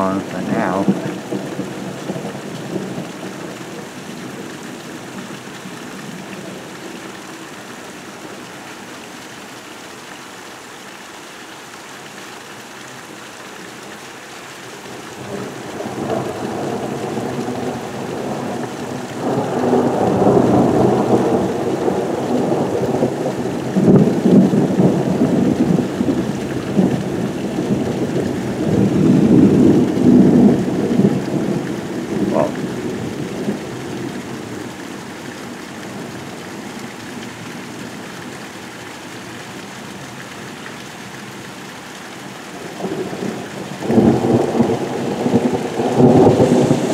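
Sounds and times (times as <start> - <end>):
heavy rain falling: 0.0 - 46.9
rolling thunder: 15.7 - 34.0, 42.8 - 46.9.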